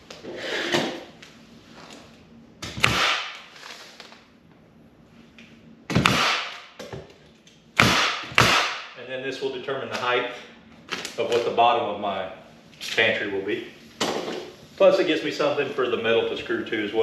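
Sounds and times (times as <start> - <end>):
nail gun firing: 2.6 - 3.4, 5.9 - 6.7, 7.8 - 8.9.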